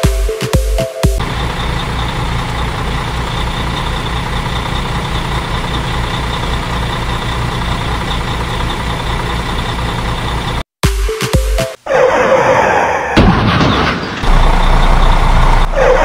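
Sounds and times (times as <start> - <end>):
truck engine running: 1.1 - 10.7, 14.2 - 16.0.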